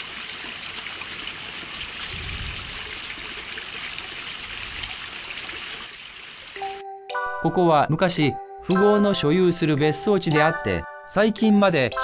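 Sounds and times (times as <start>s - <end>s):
water trickling and splashing: 0.0s - 6.8s.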